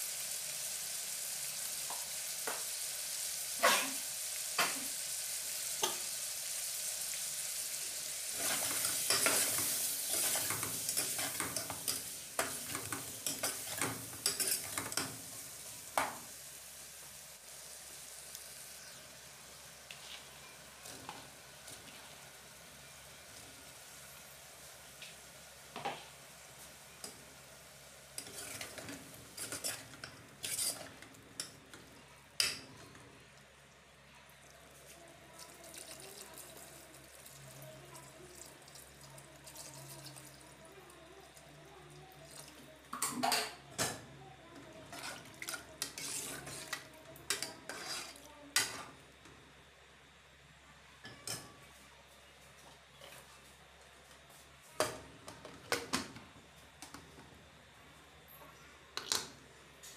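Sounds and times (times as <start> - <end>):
metal spoon scraping pot: 45.8 - 46.7, 47.3 - 48.2.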